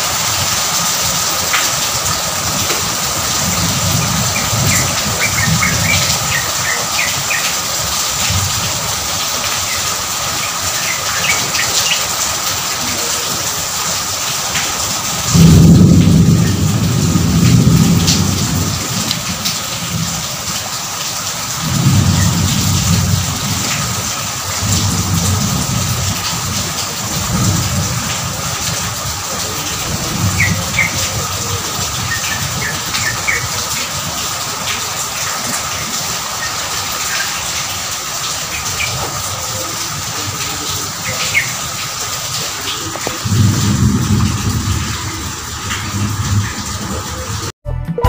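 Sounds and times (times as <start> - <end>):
heavy rain: 0.0 - 47.6
low thunder rolling: 1.0 - 7.5, 15.1 - 20.4, 21.6 - 34.2, 38.8 - 47.5.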